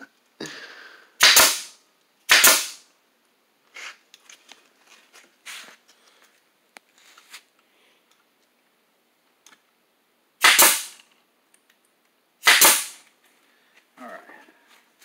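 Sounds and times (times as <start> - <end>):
nail gun firing: 1.2 - 2.8, 10.4 - 11.1, 12.4 - 13.0.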